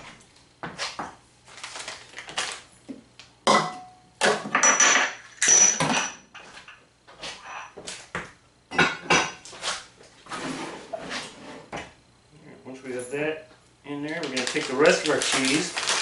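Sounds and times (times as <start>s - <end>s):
ramekins clinking: 14.0s - 16.0s.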